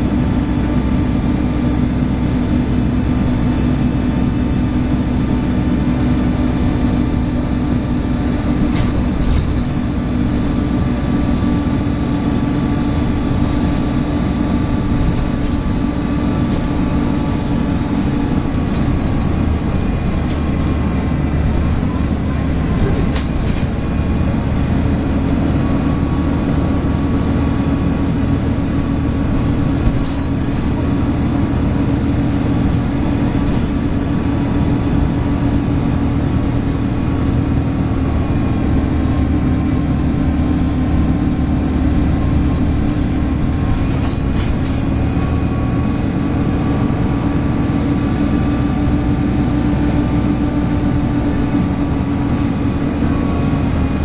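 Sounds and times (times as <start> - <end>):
bus drivetrain whine: 0.0 - 54.0
light rattles: 8.6 - 36.8, 42.0 - 45.6.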